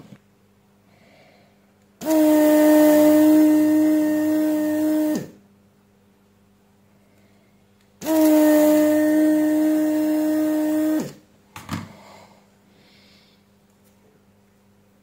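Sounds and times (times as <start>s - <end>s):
hot air gun blowing: 2.0s - 5.4s, 8.0s - 11.2s.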